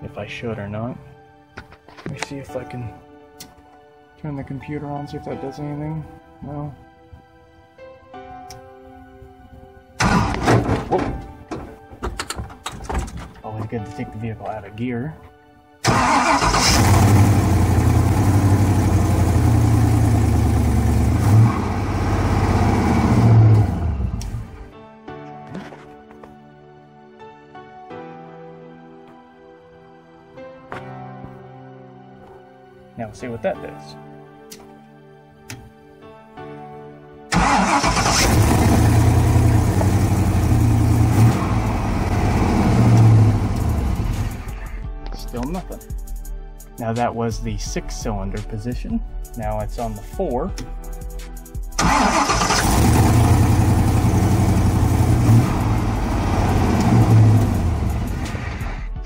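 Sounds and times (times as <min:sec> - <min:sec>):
soft background music: 0:00.0 - 0:59.0
engine starting and idling loudly: 0:10.0 - 0:11.2, 0:15.8 - 0:24.7, 0:37.3 - 0:44.5, 0:51.8 - 0:58.8.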